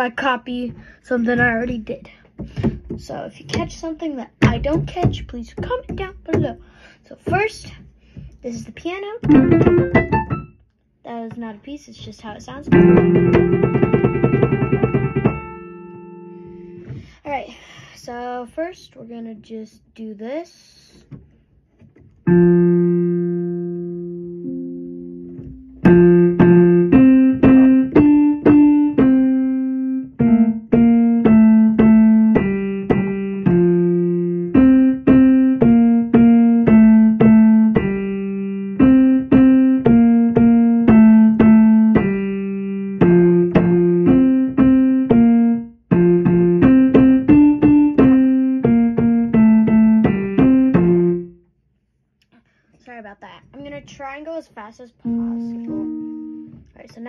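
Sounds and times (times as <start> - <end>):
electric keyboard piano: 9.2 - 10.7, 12.7 - 16.9, 22.2 - 51.4, 55.0 - 56.8.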